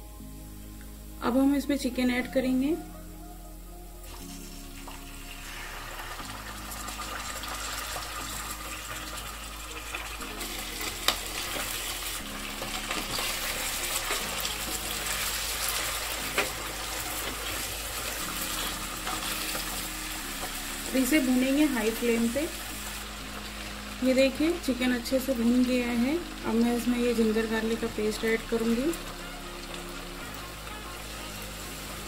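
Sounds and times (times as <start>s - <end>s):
chicken sizzling in hot oil: 4.0s - 32.0s.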